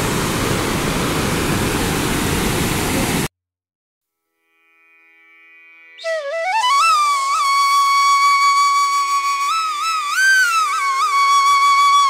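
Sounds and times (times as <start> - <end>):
solo flute melody: 5.8 - 12.0.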